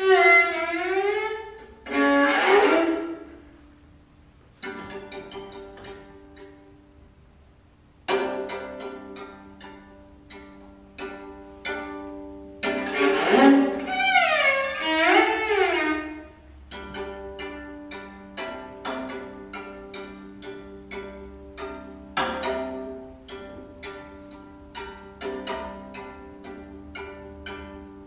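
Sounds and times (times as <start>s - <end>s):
bowed viola sliding in pitch: 0.0s - 3.6s, 12.7s - 16.5s
plucked viola notes: 0.0s - 28.0s.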